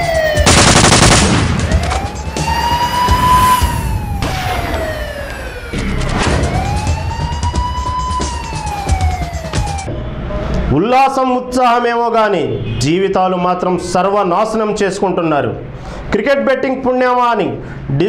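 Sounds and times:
siren wailing: 0:00.0 - 0:10.4
sharp hits: 0:00.5 - 0:07.3.

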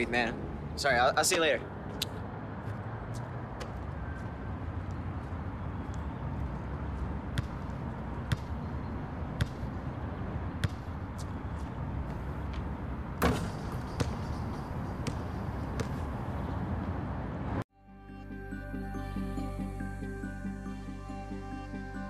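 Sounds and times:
basketball bouncing on hard court: 0:07.4 - 0:08.6, 0:09.4 - 0:09.7, 0:10.6 - 0:16.2.

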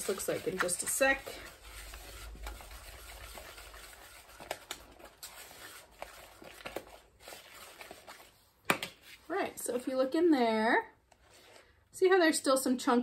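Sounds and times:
whisk swishing batter: 0:00.0 - 0:09.3.

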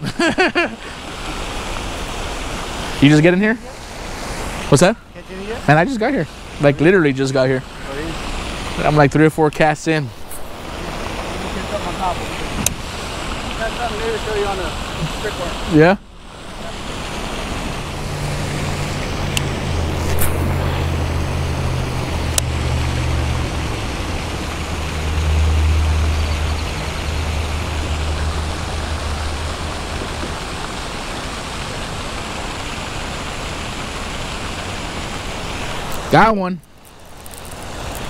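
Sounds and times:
light drizzle hissing: 0:00.0 - 0:38.0
vehicle engine humming: 0:16.0 - 0:33.8.

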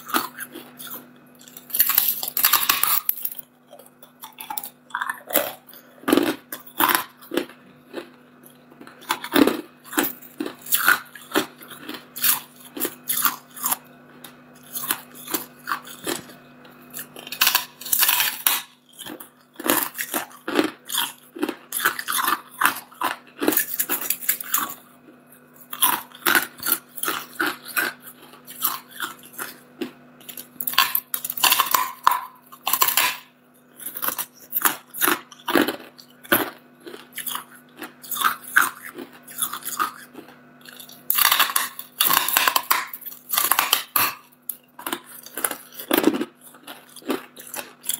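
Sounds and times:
ice cracking between teeth: 0:00.0 - 0:03.4, 0:08.9 - 0:13.8, 0:16.9 - 0:24.8, 0:30.2 - 0:33.2, 0:33.8 - 0:47.9
crunching ice being chewed: 0:00.0 - 0:47.9.

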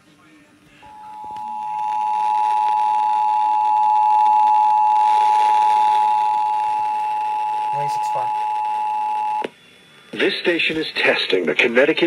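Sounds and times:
two-tone alarm signal: 0:00.9 - 0:09.4.

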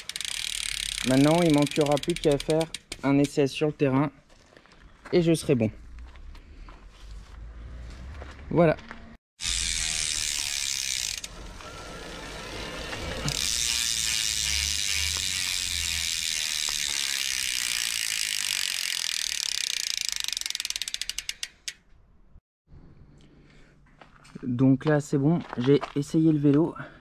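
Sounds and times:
bike freewheel ratcheting: 0:00.0 - 0:03.4, 0:09.4 - 0:21.9.

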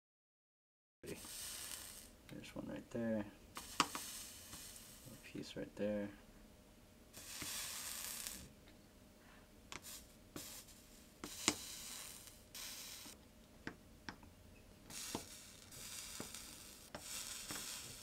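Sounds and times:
flux sizzling: 0:01.1 - 0:02.2, 0:03.6 - 0:05.3, 0:07.2 - 0:08.5, 0:09.8 - 0:13.2, 0:14.9 - 0:18.0.

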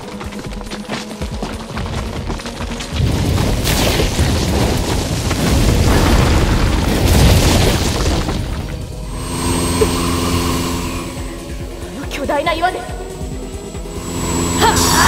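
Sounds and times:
music: 0:00.0 - 0:15.0
heavy booming rumble: 0:02.9 - 0:09.2.

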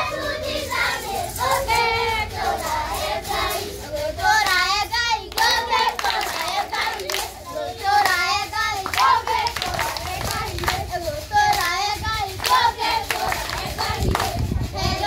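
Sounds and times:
children singing folk song: 0:00.0 - 0:15.0
hand clapping: 0:05.2 - 0:14.5.

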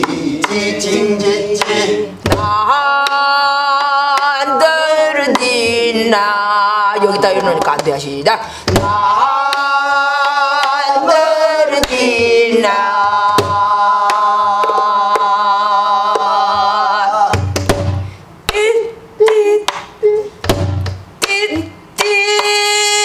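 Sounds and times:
woman singing wordless vocables: 0:00.0 - 0:17.6, 0:18.4 - 0:23.0
stick striking barrel drum: 0:01.6 - 0:03.2, 0:08.7 - 0:09.7, 0:11.8 - 0:15.3, 0:17.3 - 0:18.6, 0:20.4 - 0:22.6.

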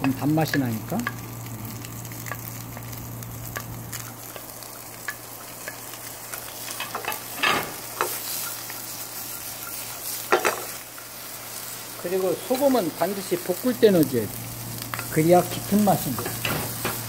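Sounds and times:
food sizzling in a frying pan: 0:00.0 - 0:17.0.

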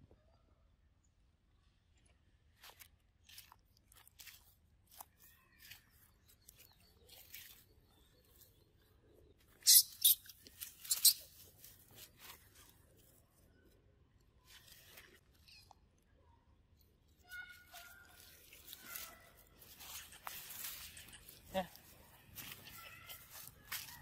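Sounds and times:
dry leaves rustling: 0:02.6 - 0:08.4, 0:10.3 - 0:13.2, 0:17.3 - 0:24.0.

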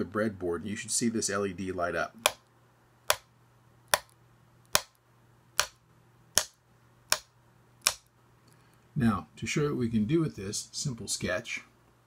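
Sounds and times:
taps on plastic breadboard: 0:02.2 - 0:02.4, 0:03.1 - 0:03.3, 0:03.9 - 0:05.0, 0:05.6 - 0:08.1.

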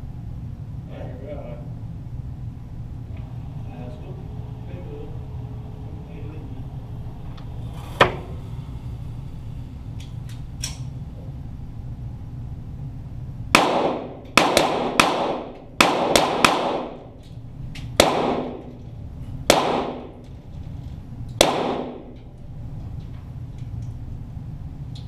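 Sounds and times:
pistol shots echoing: 0:13.6 - 0:17.0, 0:18.0 - 0:18.7, 0:19.5 - 0:20.2, 0:21.4 - 0:22.2.

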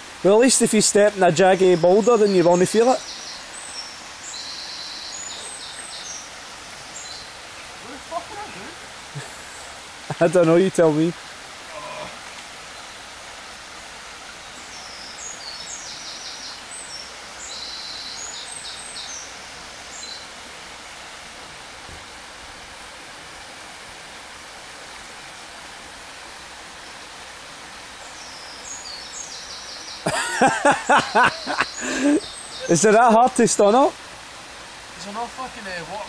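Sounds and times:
stream water over stones: 0:00.0 - 0:36.0
bird chirping: 0:14.5 - 0:20.3, 0:28.0 - 0:33.2.

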